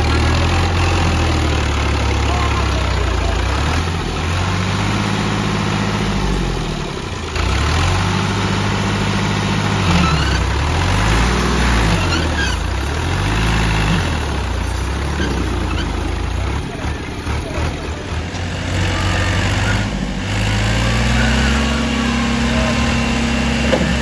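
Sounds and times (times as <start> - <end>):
tractor diesel engine revving: 0.0 - 24.0
wheels churning mud: 7.1 - 24.0.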